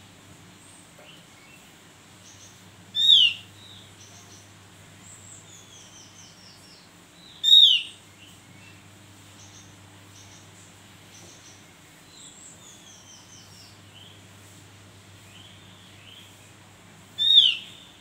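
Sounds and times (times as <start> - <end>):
faint high bird twittering: 0.6 - 14.3, 17.2 - 18.0
sharp downward-slurred bird calls: 2.2 - 4.5, 7.2 - 8.4, 17.2 - 18.0.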